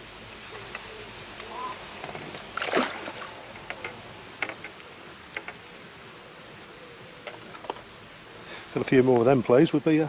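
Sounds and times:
fish splashing into water: 0:02.4 - 0:03.4
faint clicks: 0:03.5 - 0:05.6.

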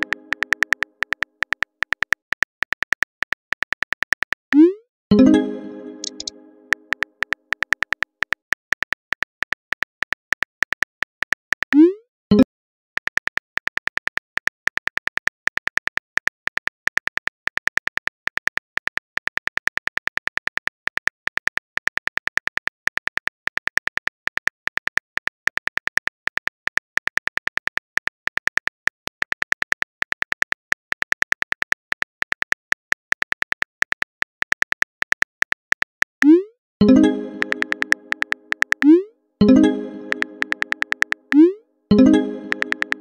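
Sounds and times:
smartphone keyboard typing clicks: 0:00.0 - 0:04.4, 0:05.9 - 0:11.8, 0:36.8 - 0:43.0.

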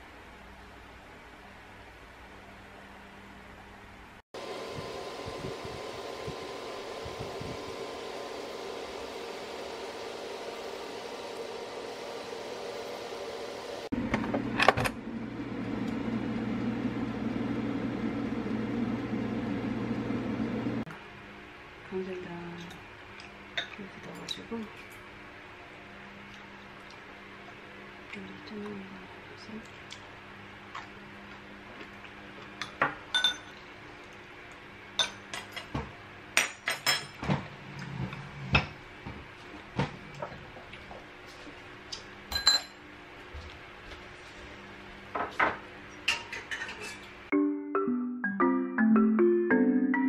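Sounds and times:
utensils clinking on ceramic bowls: 0:32.6 - 0:33.6, 0:42.3 - 0:42.8.

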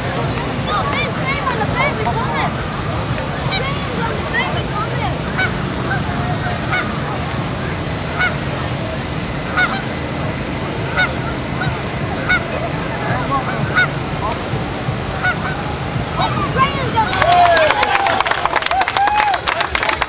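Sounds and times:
soft background calls: 0:00.0 - 0:19.4
geese honking: 0:03.4 - 0:17.1.

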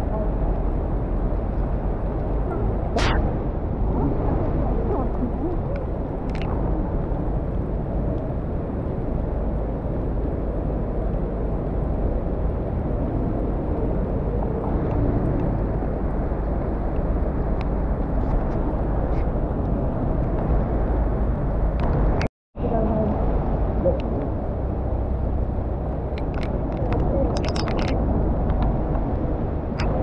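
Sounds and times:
traffic on wet roads: 0:00.0 - 0:02.8, 0:04.6 - 0:22.2.

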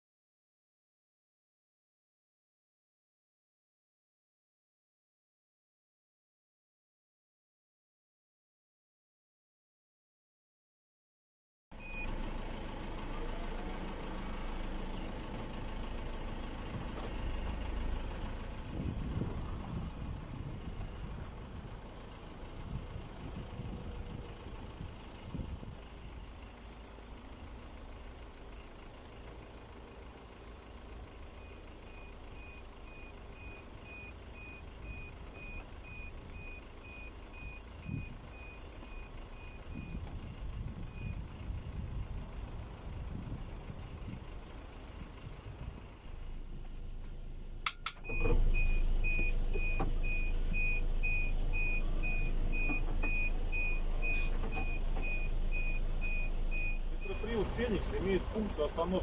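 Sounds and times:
bus engine idling: 0:11.8 - 0:59.0
short high beeps: 0:48.0 - 0:57.3.

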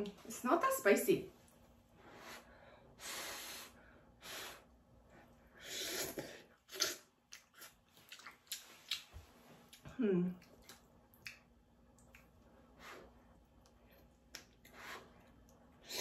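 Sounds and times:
slurping noodles: 0:05.6 - 0:07.8
mouth clicks and smacks: 0:06.8 - 0:12.4.

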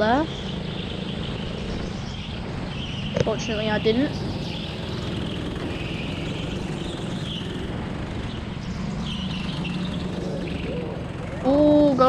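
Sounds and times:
go-kart engine running: 0:00.0 - 0:12.0.

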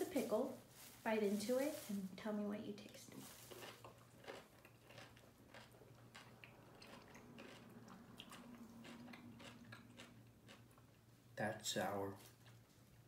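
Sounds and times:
person chewing crunchily: 0:03.2 - 0:11.1.

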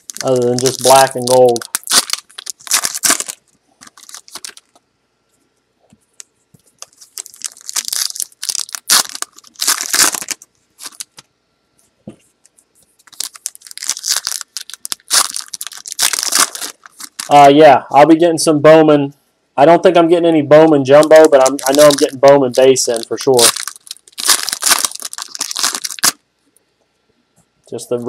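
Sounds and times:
wrappers crinkling and tearing: 0:00.0 - 0:04.8, 0:06.6 - 0:11.2, 0:12.9 - 0:17.4, 0:20.9 - 0:26.2.

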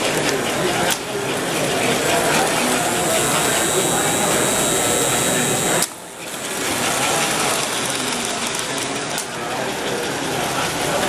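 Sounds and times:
model train clatter: 0:00.0 - 0:11.0
high whine: 0:02.7 - 0:05.8.

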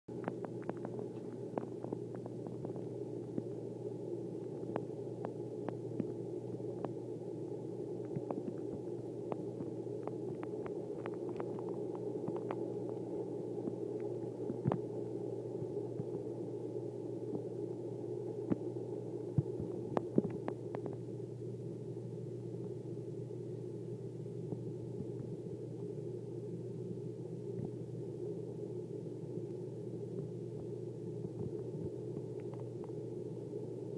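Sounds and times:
air pump humming: 0:00.1 - 0:33.9.

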